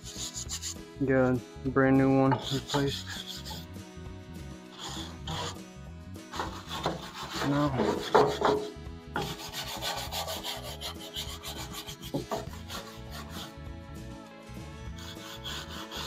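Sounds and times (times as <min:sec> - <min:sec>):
brush scrubbing rusty steel: 0:00.0 - 0:00.8, 0:02.3 - 0:03.7, 0:06.3 - 0:13.6, 0:14.9 - 0:16.0.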